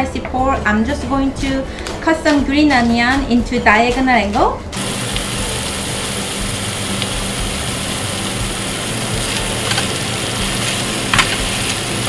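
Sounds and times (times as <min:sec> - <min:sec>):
meat sizzling in a frying pan: 0:04.8 - 0:12.0.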